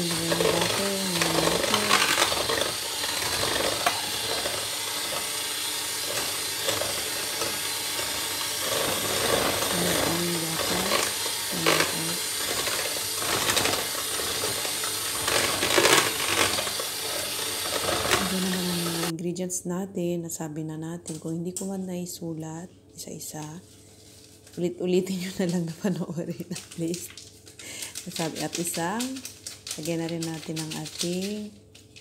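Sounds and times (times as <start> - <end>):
electric hand mixer running: 0.0 - 19.1, 27.7 - 31.3.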